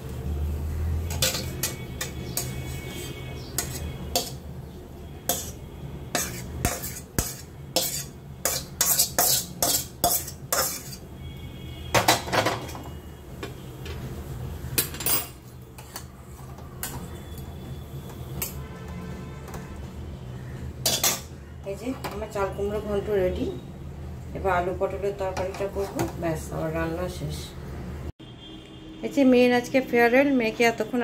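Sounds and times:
metal spatula scraping wok: 0:00.9 - 0:04.6, 0:05.2 - 0:11.2, 0:15.4 - 0:19.7.

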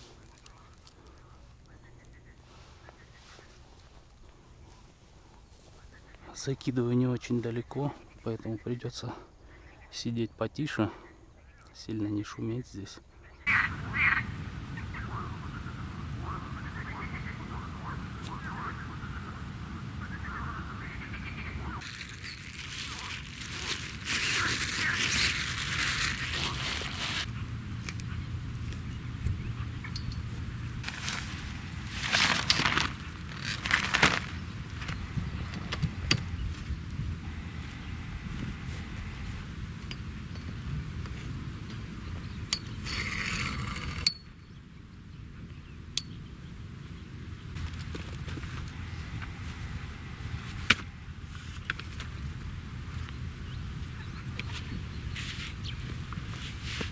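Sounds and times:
close rustling and crackling: 0:00.0 - 0:06.3, 0:21.6 - 0:39.8
fishing reel whirring: 0:42.6 - 0:44.2.

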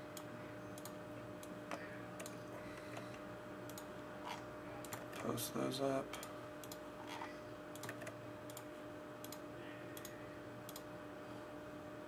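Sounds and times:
faint steady hum: 0:00.0 - 0:12.0
computer mouse clicking: 0:00.2 - 0:01.0, 0:03.7 - 0:03.9, 0:06.2 - 0:06.8, 0:07.8 - 0:09.4, 0:10.0 - 0:10.9.

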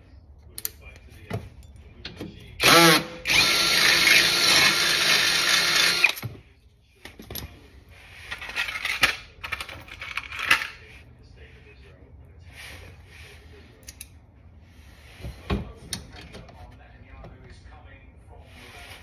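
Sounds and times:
power drill boring through metal: 0:02.6 - 0:06.2.

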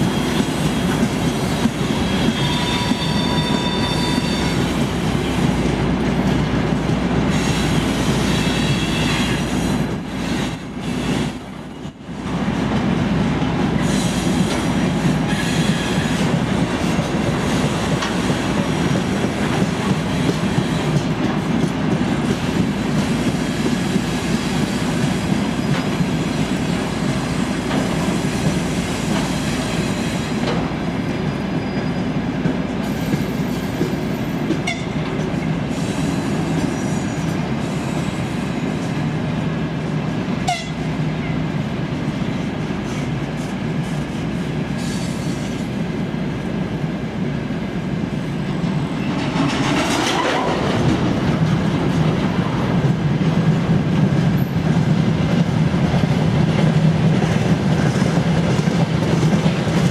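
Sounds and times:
high wheel squeal: 0:00.0 - 0:05.5, 0:07.4 - 0:09.7, 0:31.0 - 0:32.2
diesel locomotive running: 0:00.0 - 0:59.9.

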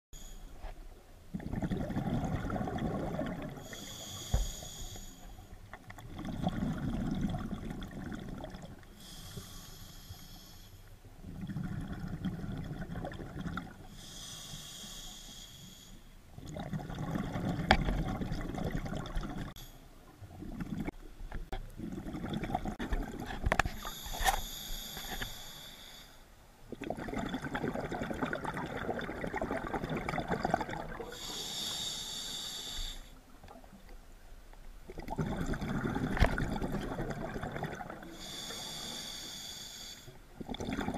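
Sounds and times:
exhaled bubbles rushing: 0:01.3 - 0:03.6, 0:05.9 - 0:08.8, 0:11.2 - 0:13.8, 0:16.4 - 0:19.6, 0:21.8 - 0:23.5, 0:26.7 - 0:31.2, 0:34.9 - 0:38.1, 0:40.4 - 0:40.9
diver breathing through regulator: 0:03.6 - 0:05.6, 0:08.9 - 0:10.9, 0:13.9 - 0:16.1, 0:23.7 - 0:26.3, 0:31.0 - 0:33.2, 0:38.1 - 0:40.2.

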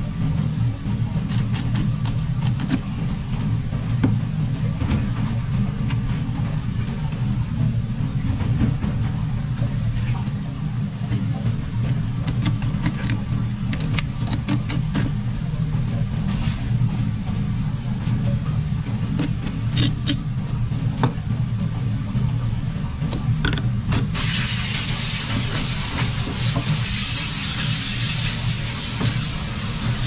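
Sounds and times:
machine hum: 0:00.0 - 0:30.0
tap water running: 0:24.1 - 0:30.0.

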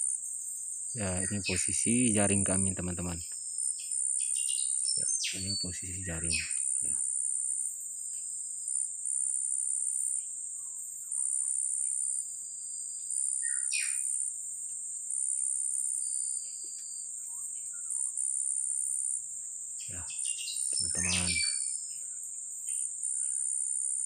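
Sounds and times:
high insect chorus: 0:00.0 - 0:24.0
thin bird whistles: 0:13.4 - 0:14.1, 0:20.1 - 0:21.8.

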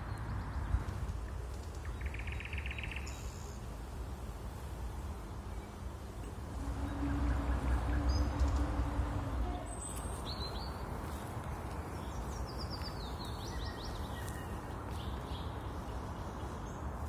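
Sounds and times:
outdoor background noise: 0:00.0 - 0:17.0
small songbirds chirping: 0:00.0 - 0:17.0
low rumble: 0:06.5 - 0:11.0.

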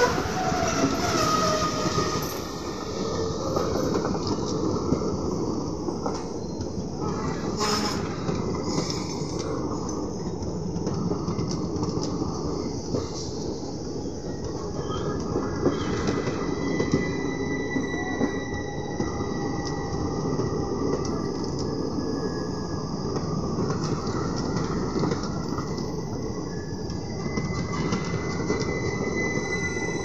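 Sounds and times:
high wheel squeal: 0:00.0 - 0:04.2, 0:14.7 - 0:20.3, 0:27.1 - 0:30.0
train wheels rumbling on rails: 0:00.0 - 0:30.0.

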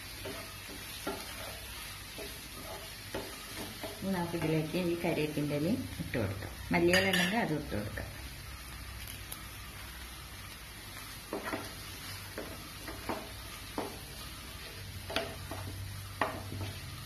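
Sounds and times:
food sizzling in a frying pan: 0:00.0 - 0:17.0
wooden spatula scraping pan: 0:00.1 - 0:04.7, 0:11.2 - 0:17.0.

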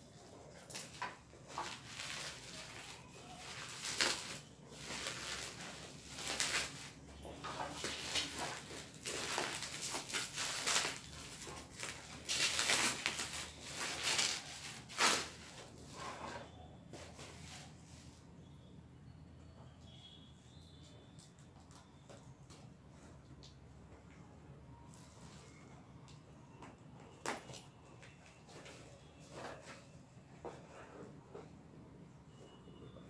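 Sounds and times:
plastic packaging crinkling: 0:00.1 - 0:15.8.

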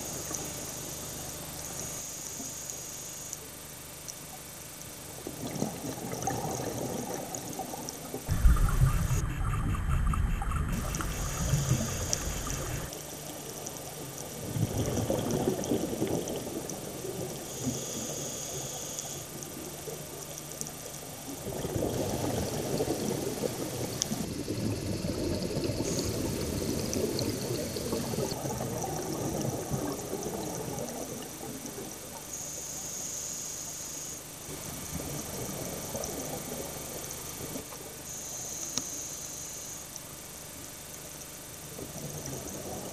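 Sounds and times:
bubbling gurgles of exhaled air: 0:05.0 - 0:12.9, 0:13.9 - 0:18.8, 0:19.4 - 0:32.3, 0:41.6 - 0:42.9
regulator hiss on inhale: 0:10.8 - 0:12.9, 0:17.3 - 0:19.2, 0:32.3 - 0:34.2, 0:38.1 - 0:39.9.

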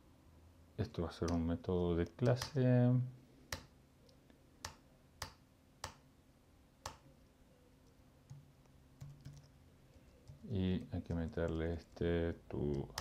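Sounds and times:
computer keyboard keystrokes: 0:09.0 - 0:12.0.

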